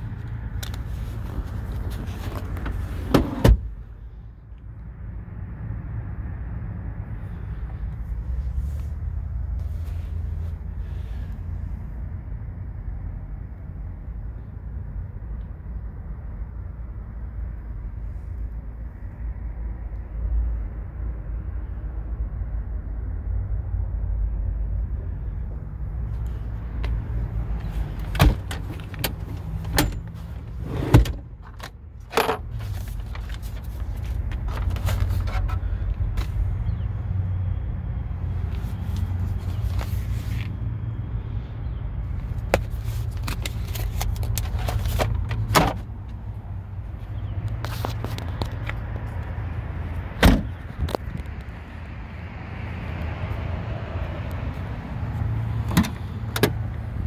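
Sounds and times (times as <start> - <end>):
low rumble in car cabin: 0.0 - 6.0, 21.9 - 37.0.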